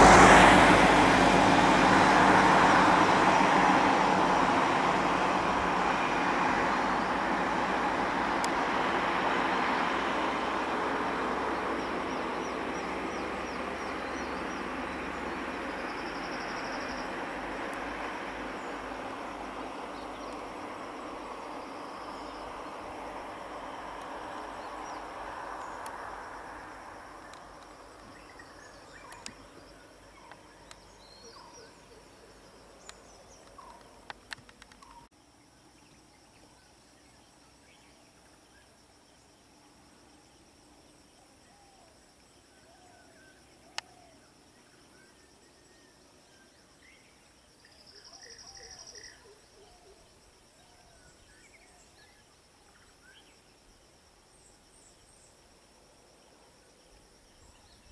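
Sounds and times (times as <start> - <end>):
vehicle rushing noise: 0.0 - 30.2
high drone of insects: 0.0 - 57.9.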